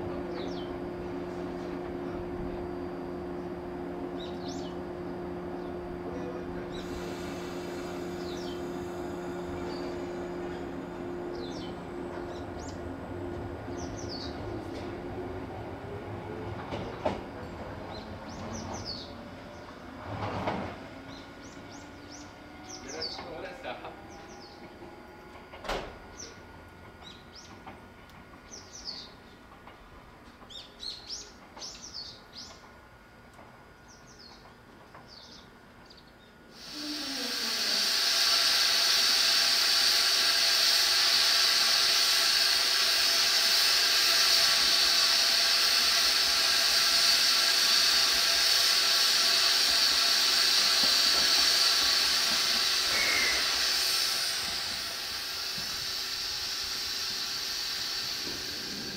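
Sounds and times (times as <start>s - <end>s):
loud steady hiss: 6.7s - 11.8s, 36.5s - 58.9s
small birds chirping: 8.2s - 8.7s, 13.6s - 14.5s.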